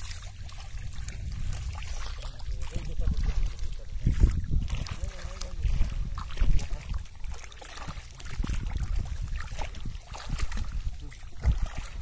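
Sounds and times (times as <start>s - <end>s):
low rumble: 0.0s - 7.1s
shallow water splashing: 0.0s - 12.0s.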